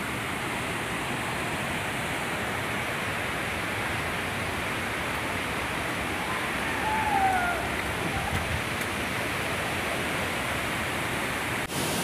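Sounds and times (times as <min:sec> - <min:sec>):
waterfall roaring: 0:00.0 - 0:12.0.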